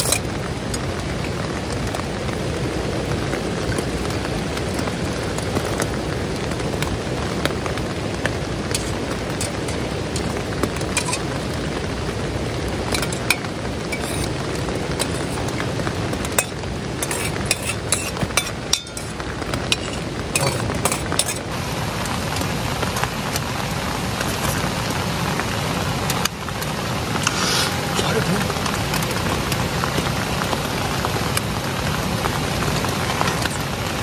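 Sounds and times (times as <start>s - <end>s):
steady hiss: 6.6s - 29.0s
metal spoon scraping bowl: 11.0s - 11.2s, 13.0s - 14.4s, 15.0s - 15.4s, 16.3s - 19.2s.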